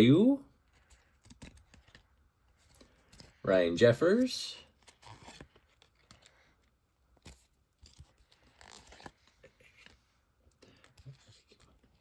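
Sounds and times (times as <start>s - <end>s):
cards sliding and rustling: 0.7s - 3.4s, 4.7s - 10.2s.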